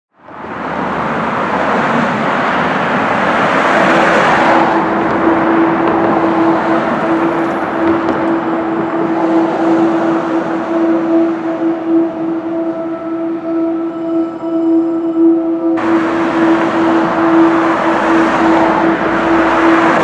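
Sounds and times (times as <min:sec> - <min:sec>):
street traffic: 0:00.1 - 0:20.0
vehicle passing: 0:00.3 - 0:20.0
steady hum: 0:04.6 - 0:20.0.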